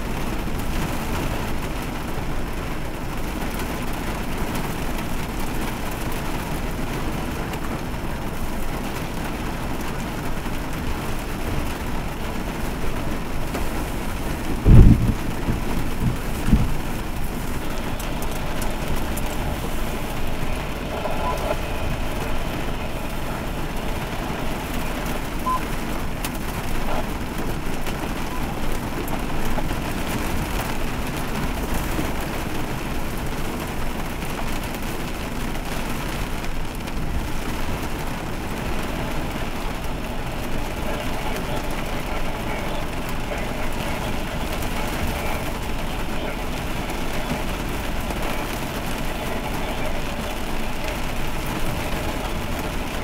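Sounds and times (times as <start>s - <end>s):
heavy rain pouring: 0.0s - 53.0s
deep thumps: 14.6s - 17.2s.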